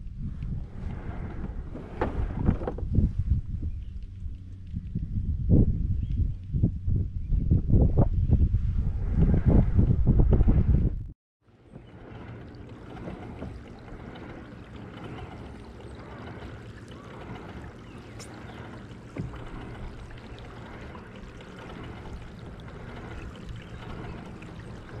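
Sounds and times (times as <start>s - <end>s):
wind rumbling on microphone: 0.0s - 25.0s
water lapping against kayak hull: 0.2s - 5.0s, 11.4s - 25.0s.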